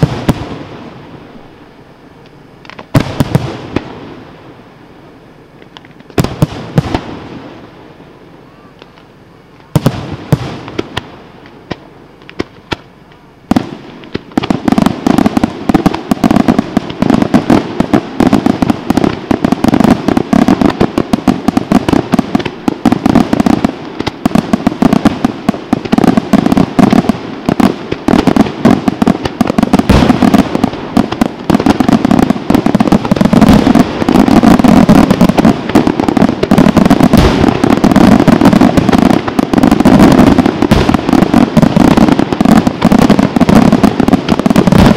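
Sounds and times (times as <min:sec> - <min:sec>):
firework shells bursting: 0:09.7 - 0:44.9.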